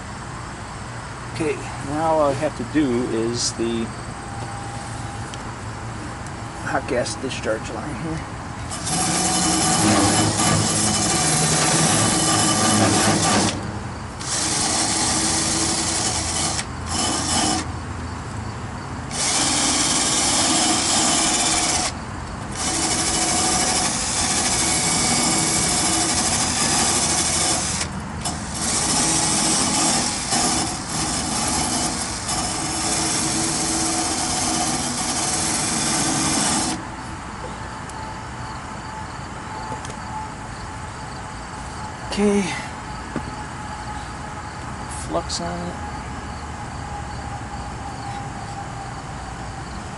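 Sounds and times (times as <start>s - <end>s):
handheld power tool running: 8.7s - 13.6s, 14.2s - 17.7s, 19.1s - 36.8s.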